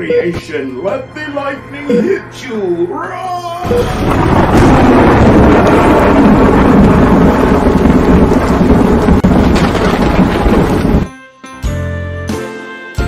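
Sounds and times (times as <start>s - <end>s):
thunder rumbling: 3.6s - 11.1s.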